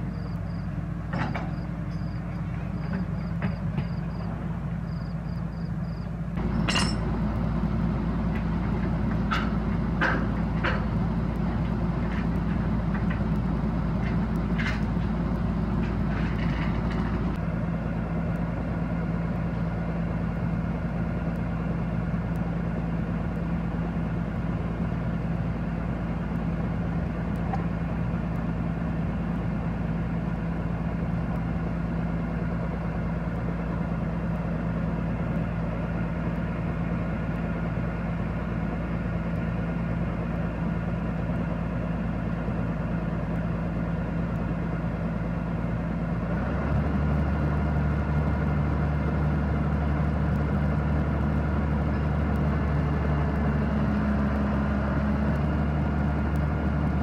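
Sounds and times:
diesel engine idling: 0.0s - 57.0s
metallic clinks: 6.4s - 7.1s.

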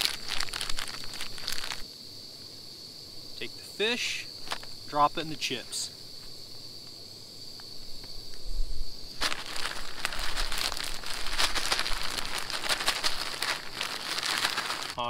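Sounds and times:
crushed chips crackling: 0.0s - 1.8s, 9.2s - 15.0s
plastic bag crinkling: 0.0s - 1.8s, 9.2s - 15.0s.

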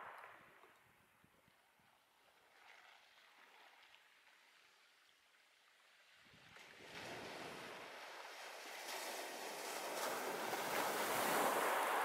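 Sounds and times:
sea wave breaking on beach: 6.8s - 12.0s.

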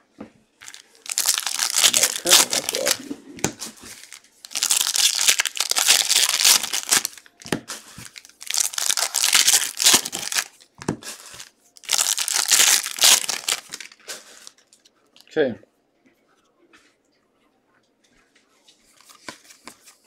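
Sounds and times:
foil wrappers crinkling: 0.6s - 14.8s.

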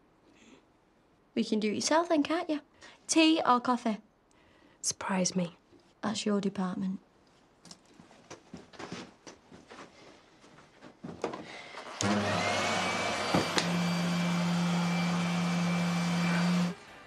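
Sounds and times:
knocks and rustles of handling: 7.3s - 11.6s
vacuum cleaner running: 11.6s - 17.0s.

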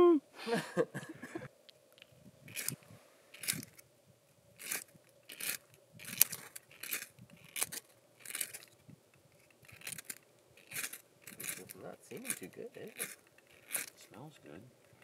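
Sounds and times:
fire-starter scraping: 2.0s - 3.8s, 4.5s - 14.2s.

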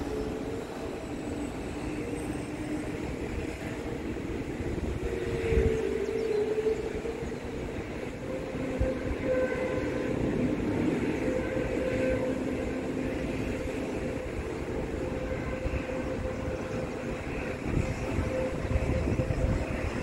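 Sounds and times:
aircraft engines droning: 0.0s - 20.0s.

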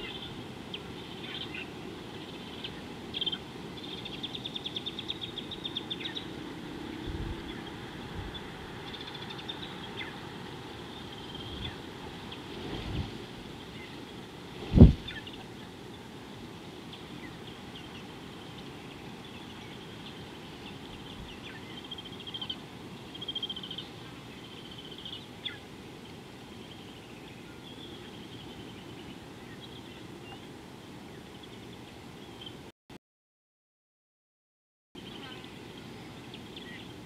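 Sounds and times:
small birds chirping and trilling: 0.0s - 32.7s, 35.0s - 37.0s.

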